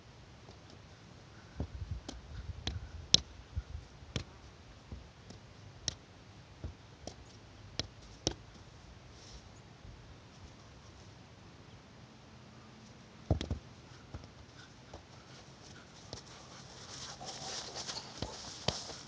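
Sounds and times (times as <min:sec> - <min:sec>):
ball taps on feet: 0:13.3 - 0:14.3.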